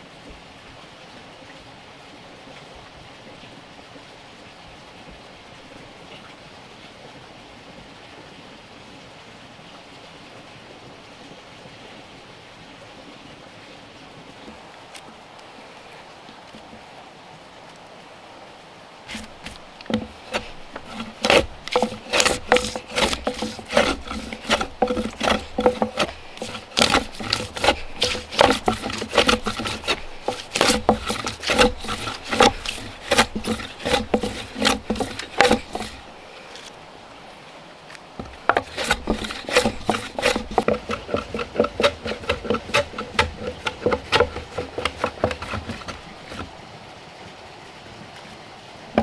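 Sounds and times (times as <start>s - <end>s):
hand plane shaving wood: 19.1s - 36.7s, 38.2s - 46.5s.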